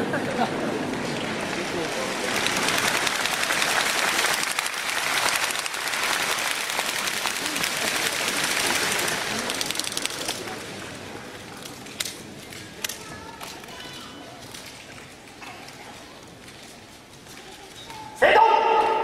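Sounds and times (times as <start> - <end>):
audience clapping: 0.6 - 12.2.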